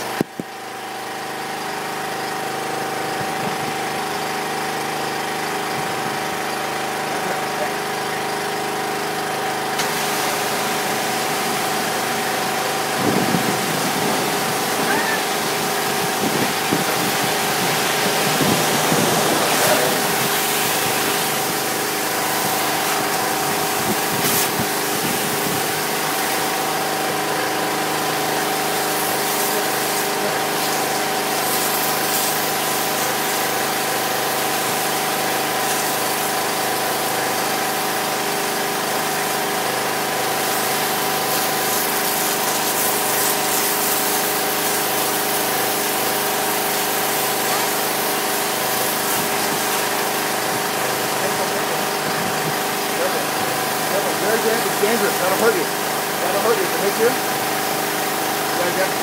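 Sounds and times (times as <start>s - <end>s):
machine motor humming: 0.0s - 59.0s.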